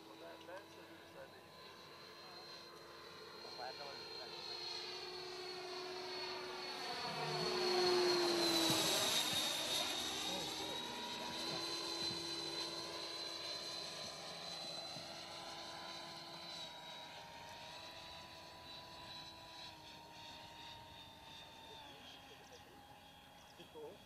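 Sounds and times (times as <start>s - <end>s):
model jet whine flying past: 1.0s - 23.2s.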